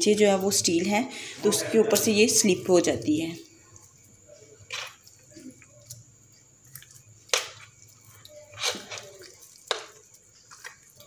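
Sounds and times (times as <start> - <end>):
small wet ticks: 3.4 - 11.0.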